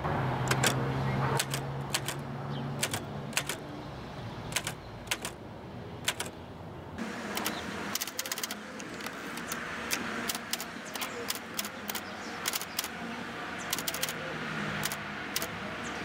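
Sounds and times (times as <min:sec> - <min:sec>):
typewriter type-bar clacks: 0:00.5 - 0:00.8, 0:01.4 - 0:02.2, 0:02.8 - 0:03.6, 0:04.5 - 0:05.4, 0:06.1 - 0:06.3, 0:07.4 - 0:12.9, 0:13.7 - 0:14.2.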